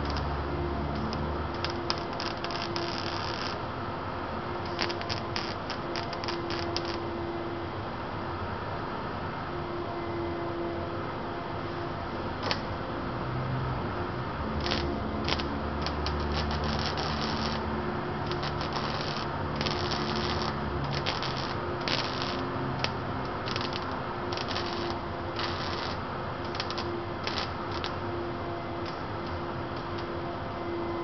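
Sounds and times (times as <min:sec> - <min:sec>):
arc welder crackling: 0:00.0 - 0:03.8, 0:04.5 - 0:07.2, 0:12.4 - 0:12.7, 0:14.4 - 0:28.1.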